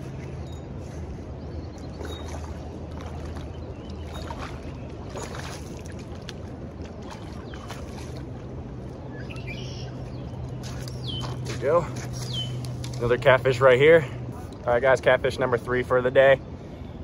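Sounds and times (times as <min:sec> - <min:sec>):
low steady hum: 0:00.0 - 0:17.0
bird chirps: 0:09.1 - 0:11.5, 0:12.1 - 0:12.6.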